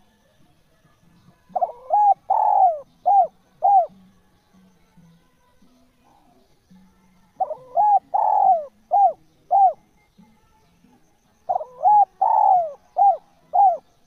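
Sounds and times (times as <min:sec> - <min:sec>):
dove cooing: 0:01.5 - 0:04.0, 0:07.3 - 0:09.8, 0:11.4 - 0:14.0.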